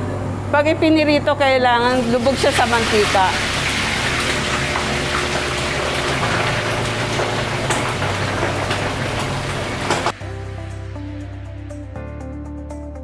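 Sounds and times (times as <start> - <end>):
music: 0.0 - 13.0
meat sizzling in hot oil: 1.9 - 10.2
oil popping: 2.0 - 10.2.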